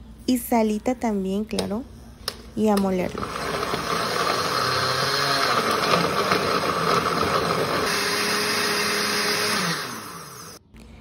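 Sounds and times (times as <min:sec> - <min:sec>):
blender motor running: 0:03.1 - 0:10.6.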